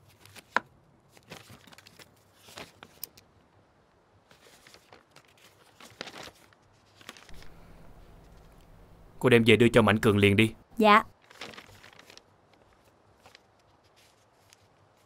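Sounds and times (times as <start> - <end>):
paper rustling: 0.0 - 3.2, 4.2 - 8.7, 11.2 - 15.0.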